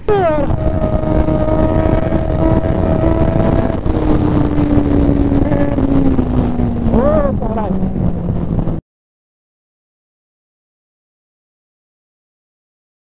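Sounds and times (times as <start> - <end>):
motorcycle engine running: 0.0 - 8.8
wind noise: 0.0 - 8.8.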